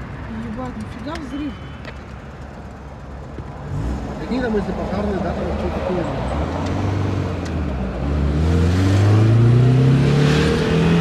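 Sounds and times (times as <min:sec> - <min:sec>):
road noise inside car: 0:00.0 - 0:11.0
car engine accelerating: 0:03.6 - 0:11.0.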